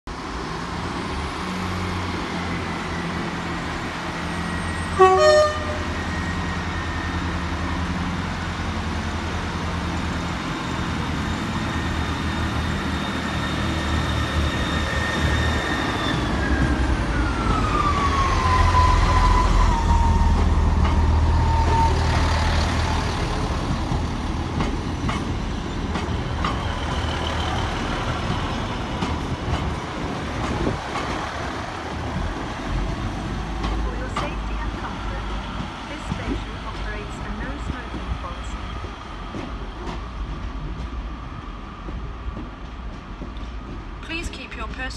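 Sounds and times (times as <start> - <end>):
diesel train engines running: 0.1 - 44.9
train horn blast: 4.9 - 6.0.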